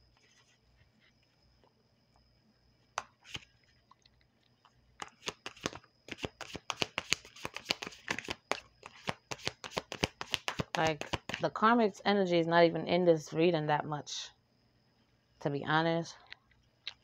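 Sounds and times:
cards being shuffled: 3.0 - 3.5, 5.0 - 11.4.

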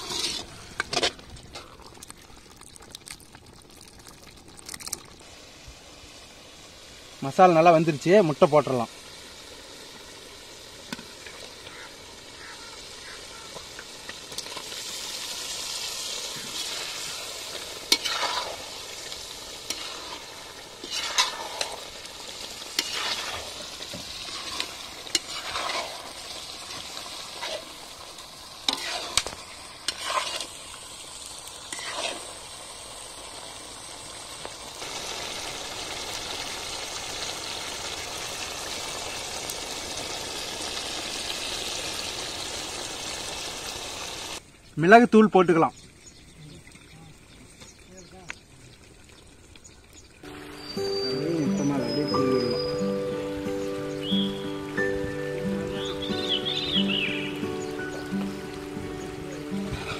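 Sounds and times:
ladle scraping and knocking pan: 0.0 - 1.7, 17.9 - 18.5, 22.7 - 26.0, 28.7 - 30.5
gravy bubbling and sizzling: 0.0 - 59.9.

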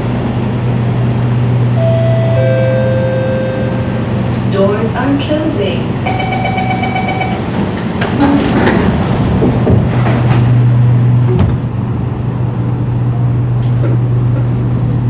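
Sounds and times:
low train hum: 0.0 - 15.0
sliding train doors closing: 6.0 - 12.5.

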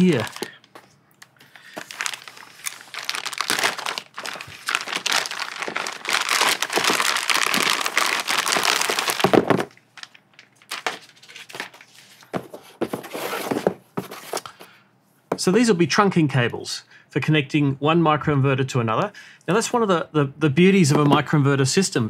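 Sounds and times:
plastic bag crinkling and tearing: 0.0 - 0.6, 1.5 - 12.0.

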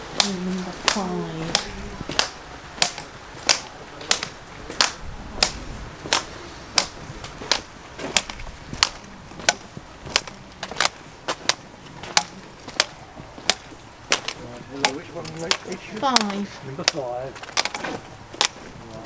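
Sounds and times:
footsteps on wet platform: 0.0 - 19.0.

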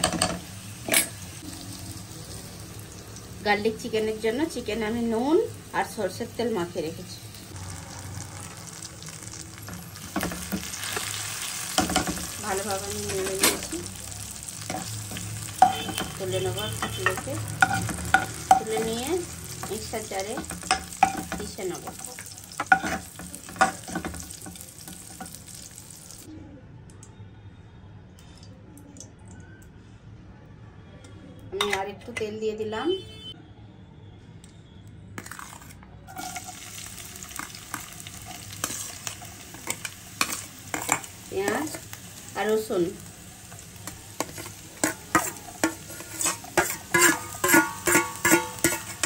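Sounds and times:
hot oil sizzling: 0.0 - 26.3, 35.2 - 49.0
metal spoon scraping a pan: 14.6 - 25.4, 36.1 - 42.0, 43.6 - 49.0
spoon clinking in steel bowl: 43.8 - 49.0.

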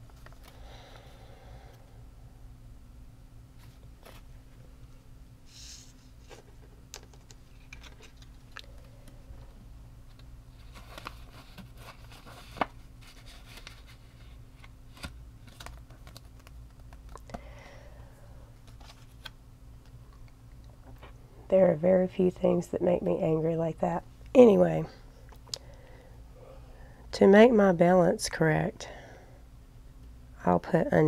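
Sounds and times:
paper rustling: 10.5 - 17.2.

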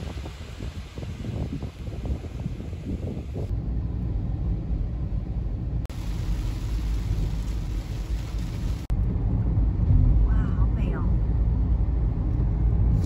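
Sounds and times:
hiss of spray and rain: 0.0 - 3.5, 5.9 - 8.9
tyres rumbling on wet road: 0.0 - 3.5, 4.5 - 12.1.

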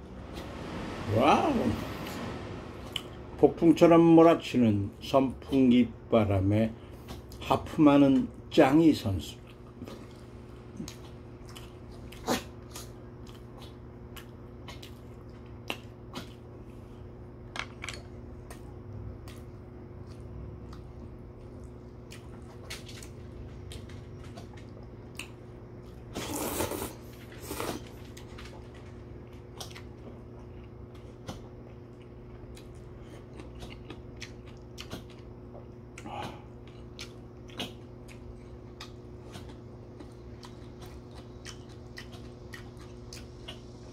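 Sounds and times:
electric fan humming: 0.0 - 43.9
chewing: 9.3 - 16.9, 18.0 - 43.9
slurping noodles: 26.1 - 28.0.

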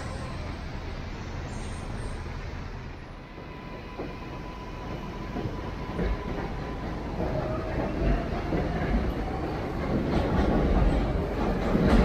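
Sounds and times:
traffic on wet pavement: 0.0 - 12.0.

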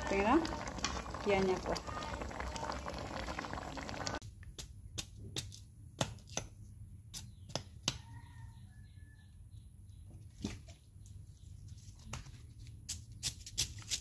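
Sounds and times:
pan bubbling at the boil: 0.0 - 4.2.

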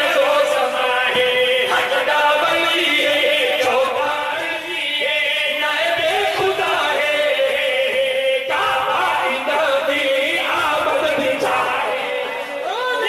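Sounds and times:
man singing into microphone: 0.0 - 13.0
men chanting together: 0.0 - 13.0.

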